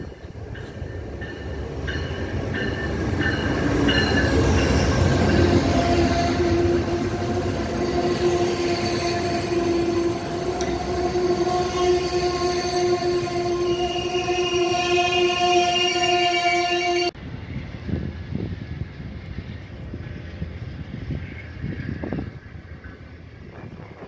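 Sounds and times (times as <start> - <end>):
diesel locomotive rumble: 0.0 - 24.0
train wheels squealing: 20.0 - 24.0.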